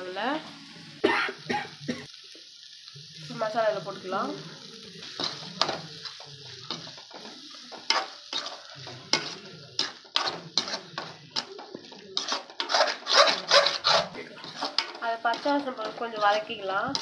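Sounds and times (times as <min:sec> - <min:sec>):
faint sizzle: 0:00.0 - 0:17.0
metal ladle scraping metal pan: 0:06.7 - 0:17.0.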